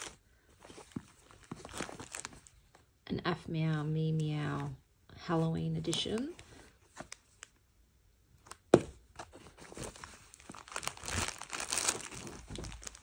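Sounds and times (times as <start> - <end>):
packaging crinkling: 0.0 - 2.8, 9.2 - 13.0.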